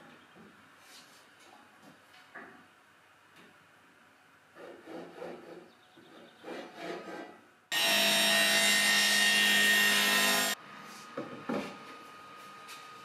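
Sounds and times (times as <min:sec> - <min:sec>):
panel saw cutting wood: 0:07.7 - 0:10.6.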